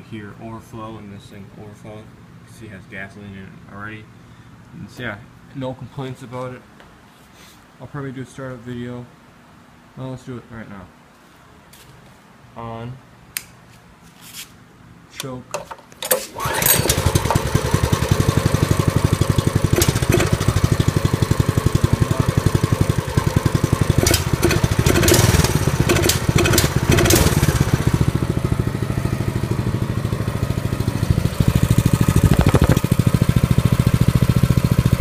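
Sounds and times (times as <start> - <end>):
small engine idling: 16.4 - 35.0
knocks and rattles: 32.0 - 33.0.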